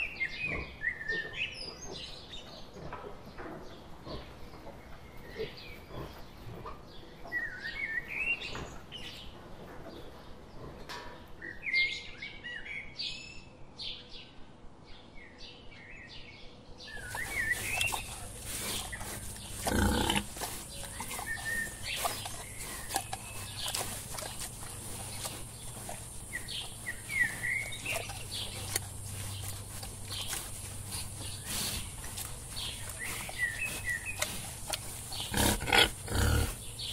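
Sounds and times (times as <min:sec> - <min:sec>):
small birds chirping: 0:00.0 - 0:36.9
piglets grunting: 0:17.0 - 0:36.9.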